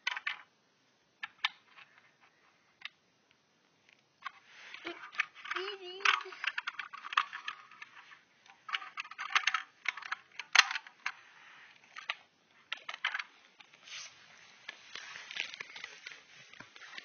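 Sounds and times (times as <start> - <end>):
plastic toy parts clicking: 0.0 - 0.5, 4.2 - 11.2, 11.8 - 13.7.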